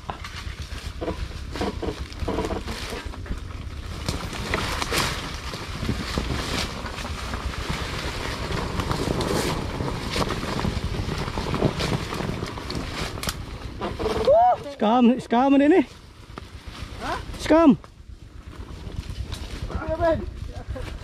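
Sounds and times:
sharp knocks and rattles: 0:00.0 - 0:14.3
wind buffeting microphone: 0:00.0 - 0:14.8
motorcycle engine rumble: 0:00.0 - 0:21.0.

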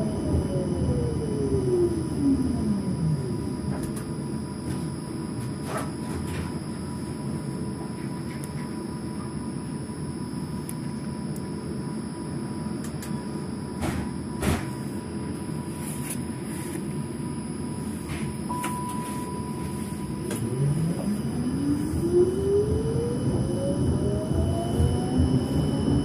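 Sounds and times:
traction motor whine rising: 0:00.0 - 0:03.4, 0:19.6 - 0:26.0
steady low hum: 0:00.0 - 0:26.0
click: 0:03.8 - 0:04.1, 0:12.8 - 0:13.2
beep: 0:18.5 - 0:20.3.

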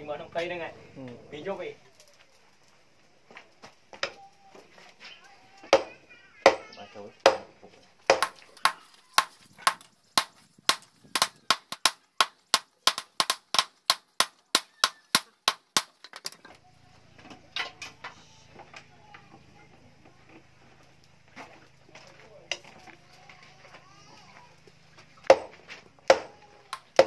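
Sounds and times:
hammer striking hot steel on anvil: 0:08.1 - 0:15.9.

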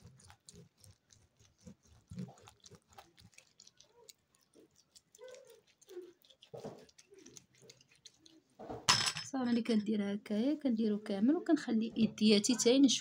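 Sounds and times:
hands scrubbing with gritty scrub: 0:00.0 - 0:08.9.

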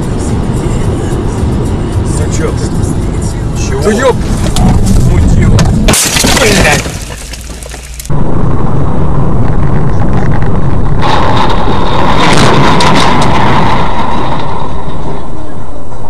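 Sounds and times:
road and engine noise: 0:00.0 - 0:16.0
car crash: 0:03.6 - 0:16.0.

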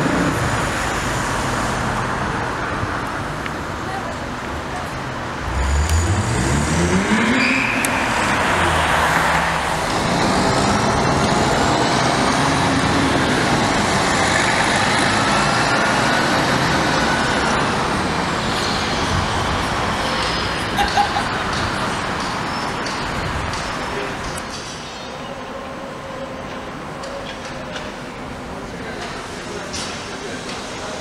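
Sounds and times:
traffic noise: 0:00.0 - 0:31.0
vehicle engine accelerating: 0:05.3 - 0:20.4.

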